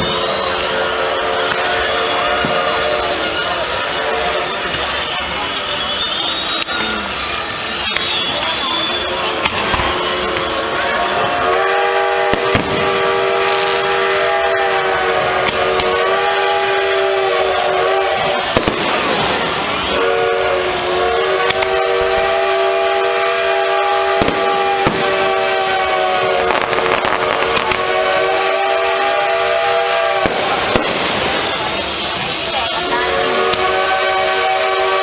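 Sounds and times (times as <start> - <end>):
fireworks bangs: 0.0 - 35.0
multi-tone horn blast: 9.1 - 32.0, 32.8 - 35.0.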